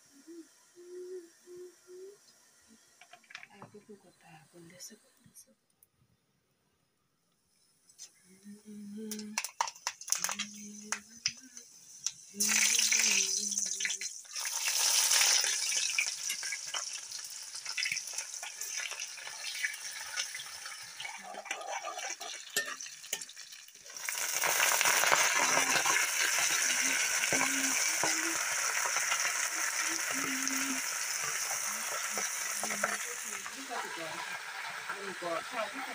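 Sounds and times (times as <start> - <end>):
hot oil sizzling: 2.4 - 3.6, 9.1 - 35.9.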